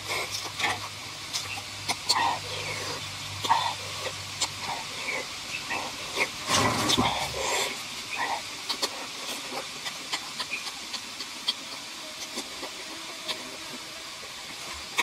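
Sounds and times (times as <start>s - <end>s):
mouth clicks and smacks: 0.0s - 13.5s
crunchy chewing of lettuce: 0.0s - 15.0s
breath hissing through lips: 6.5s - 10.6s.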